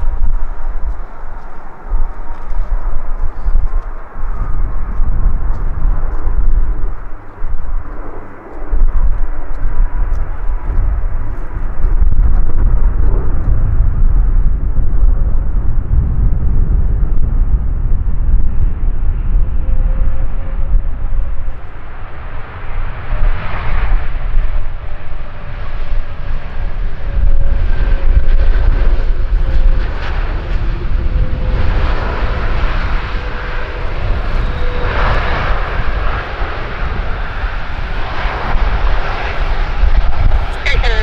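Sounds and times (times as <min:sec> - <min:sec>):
faint jet engine whine: 0:00.0 - 0:41.0
jet engines rumbling: 0:00.0 - 0:41.0.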